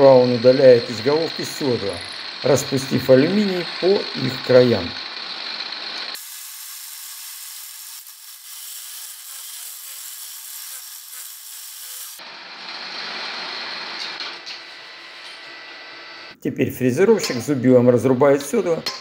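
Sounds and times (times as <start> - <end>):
milling machine scraping metal: 0.0 - 6.3.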